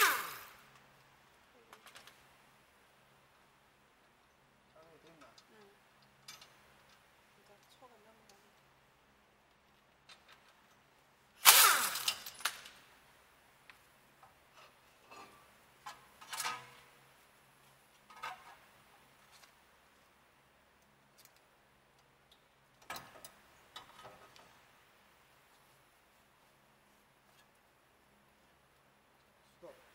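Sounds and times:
loud metal clatter: 0:11.4 - 0:12.7
metal clanks and rattles: 0:14.5 - 0:16.9, 0:18.0 - 0:18.8.

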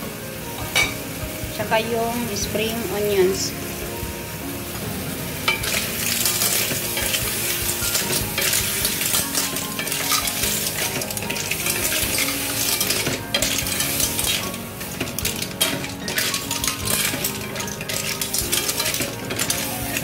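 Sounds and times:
sizzling in a wok: 0:00.0 - 0:20.0
shells clattering against pan: 0:07.9 - 0:20.0.

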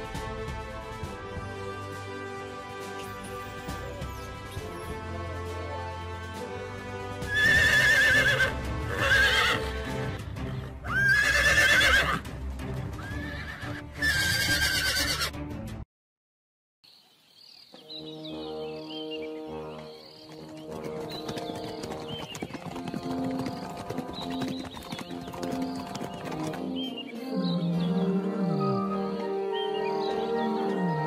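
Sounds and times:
background music: 0:00.0 - 0:15.8, 0:17.8 - 0:31.0
horses whinnying: 0:07.3 - 0:12.2, 0:13.0 - 0:15.3.

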